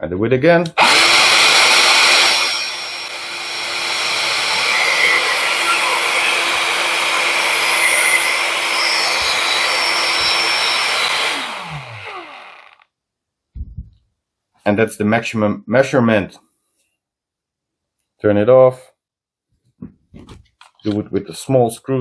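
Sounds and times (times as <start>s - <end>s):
fan winding down: 0.8s - 12.8s.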